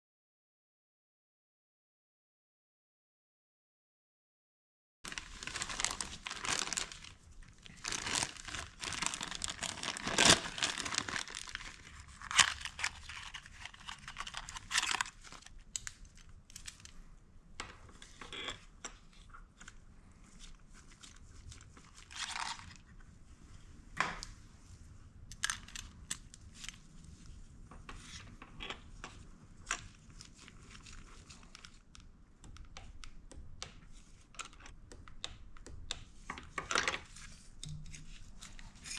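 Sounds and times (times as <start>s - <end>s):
crinkling and rustling: 5.1s - 35.0s, 36.1s - 38.9s
light clicks and taps of tools: 37.6s - 38.6s.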